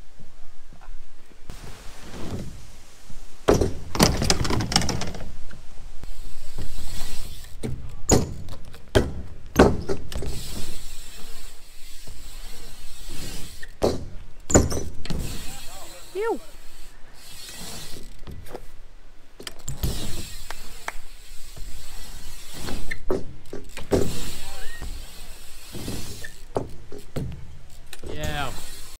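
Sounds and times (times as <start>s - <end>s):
bike tyres rolling on ramp: 0.6s - 29.0s
bike and ramp thunks and rattles: 3.4s - 5.5s, 6.4s - 15.5s, 17.3s - 18.8s, 19.4s - 28.8s.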